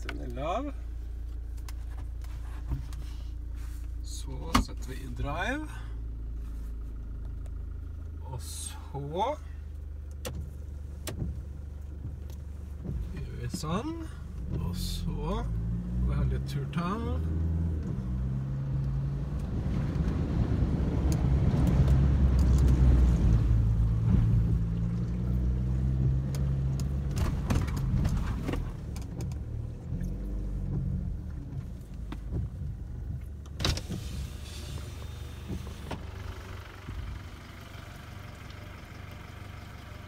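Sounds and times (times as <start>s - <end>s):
vehicle engine revving: 10.1s - 40.0s.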